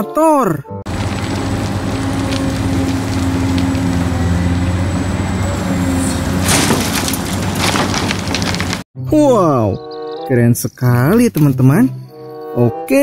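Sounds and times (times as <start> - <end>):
excavator engine drone: 0.9 - 8.8
earth and rocks clattering: 0.9 - 8.9.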